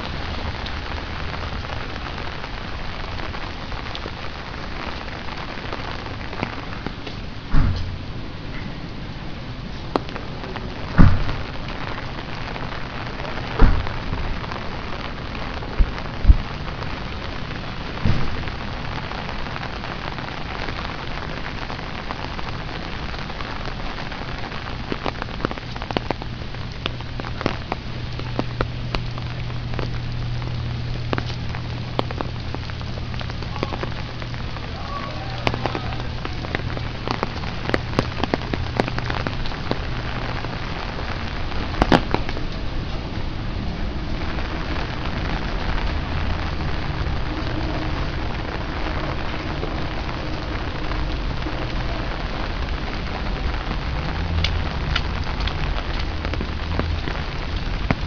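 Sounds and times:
rain hissing on paving: 0.0 - 58.0
loud thumps: 7.5 - 8.0, 11.0 - 11.5, 13.6 - 14.2, 18.0 - 18.5
low steady hum: 24.7 - 58.0.

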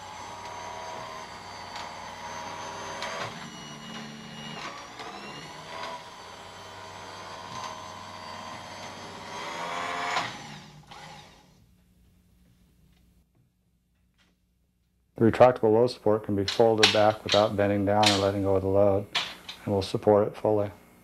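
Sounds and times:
stair-climbing hand truck motor whining: 0.0 - 11.6.

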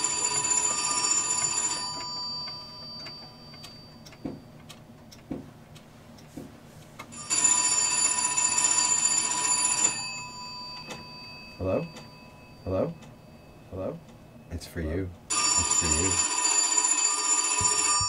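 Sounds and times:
telephone ringing: 0.0 - 4.6, 7.1 - 14.5, 15.3 - 18.0
faint clicks and knocks: 1.4 - 7.1.

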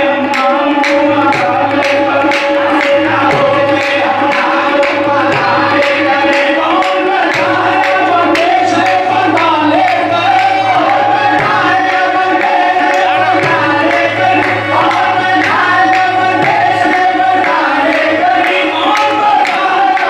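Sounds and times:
person singing: 0.0 - 20.0
tabla and percussion rhythm: 0.0 - 20.0
sustained drone: 7.4 - 18.8.

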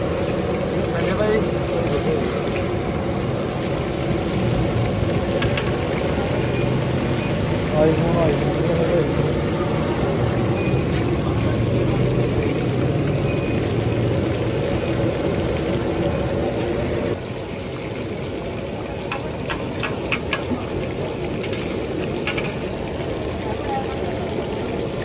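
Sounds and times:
chicken deep-frying in oil: 0.0 - 25.0
metal skimmer knocking on wok: 19.1 - 20.6, 22.2 - 22.6.

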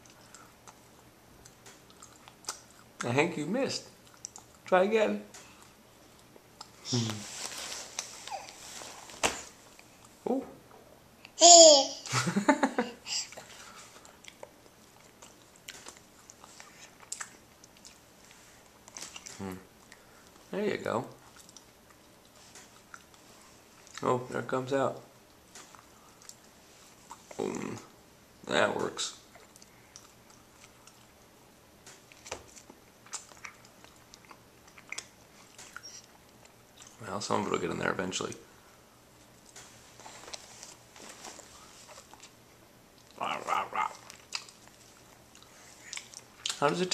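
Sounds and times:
baby chewing mouth clicks: 4.0 - 4.7, 14.0 - 18.0, 31.8 - 37.0, 43.8 - 46.8
breathy baby sound: 6.8 - 7.4, 8.2 - 8.8, 13.0 - 14.0.

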